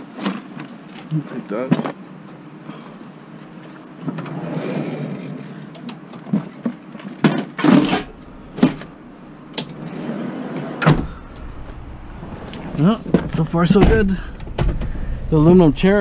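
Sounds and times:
scrap metal clanking: 7.6s - 9.0s
heavy thump: 7.9s - 9.0s, 10.8s - 16.0s
low rumble: 8.0s - 9.5s, 10.9s - 16.0s.

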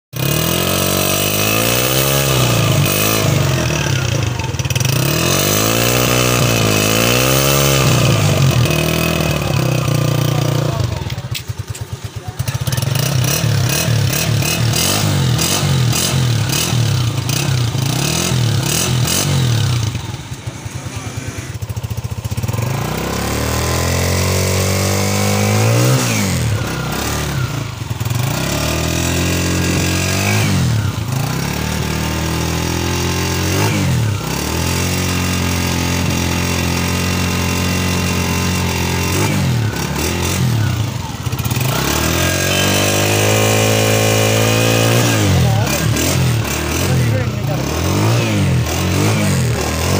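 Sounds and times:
engine revving: 0.2s - 49.9s
motorcycle engine idling: 0.2s - 49.9s.

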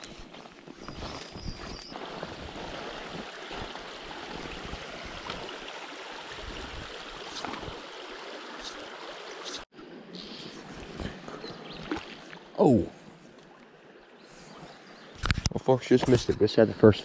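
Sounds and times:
river rushing over gravel: 1.9s - 7.8s.

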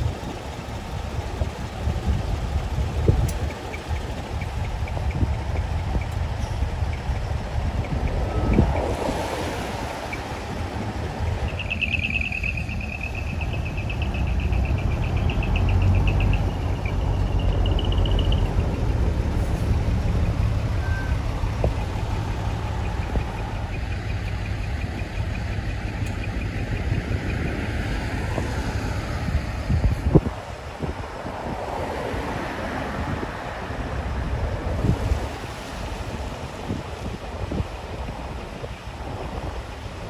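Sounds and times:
truck engines rumbling: 0.0s - 40.0s
high rapidly pulsing tone: 9.7s - 19.2s.

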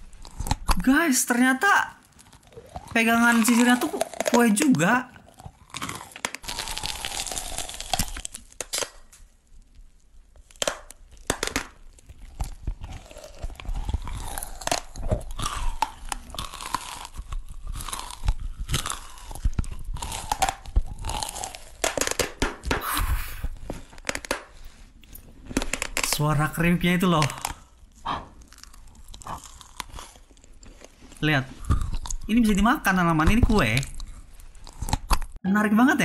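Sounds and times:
cake crunching: 0.0s - 1.0s, 2.0s - 35.4s
wet sticky mouth sounds: 2.2s - 8.3s, 27.2s - 32.4s.

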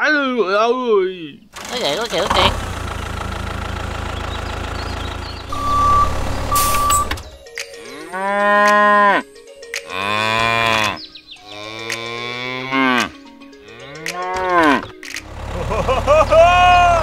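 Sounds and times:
cows mooing: 7.8s - 15.1s.

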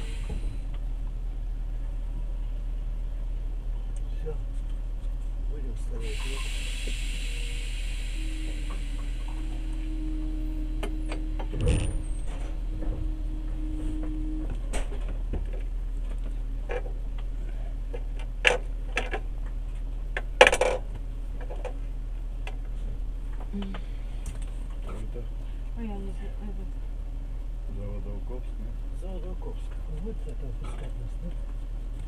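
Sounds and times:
train carriage hum: 0.0s - 32.0s
steady tone: 5.9s - 16.6s.

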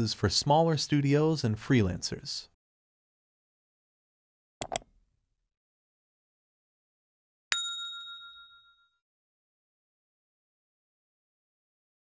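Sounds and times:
mouse click sound effects: 4.6s - 4.9s
bright bell ding: 7.5s - 9.0s.

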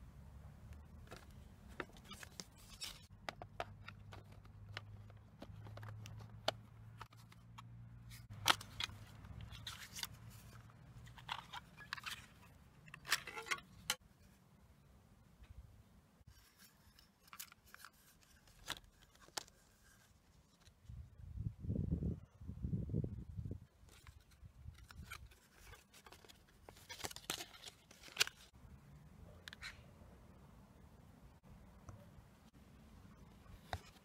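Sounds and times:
paper inserts rustling: 0.8s - 14.0s, 16.3s - 20.8s, 23.8s - 28.5s
plastic cassette cases clicking: 1.0s - 14.0s, 23.9s - 28.5s.

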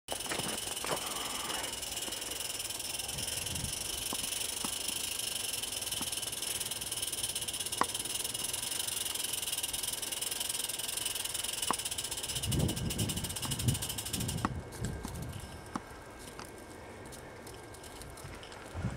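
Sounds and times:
steam locomotive hissing: 0.2s - 11.4s.

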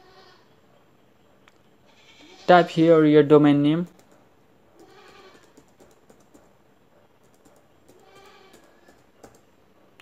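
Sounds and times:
faint keyboard typing: 3.7s - 10.0s.

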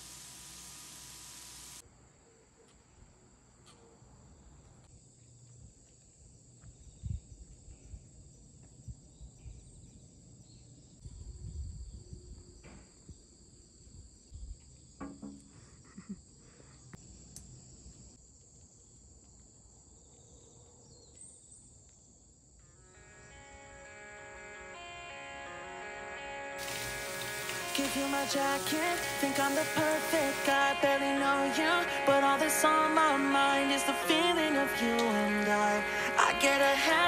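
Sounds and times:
insects chirring: 26.6s - 37.0s.

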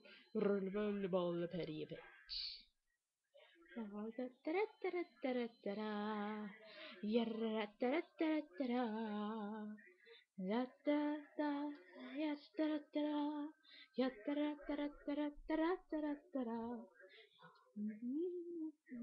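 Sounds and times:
woman singing unaccompanied: 3.8s - 9.8s, 10.4s - 16.9s, 17.8s - 19.0s.

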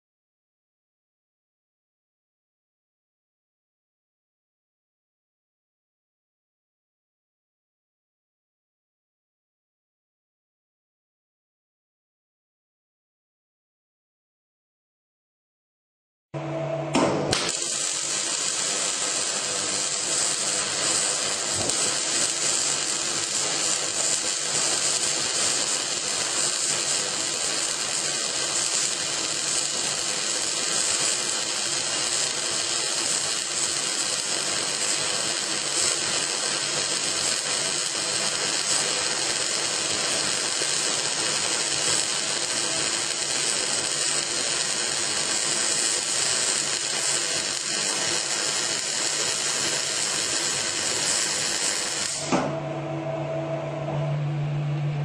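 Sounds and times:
welding arc hissing: 17.3s - 52.4s.

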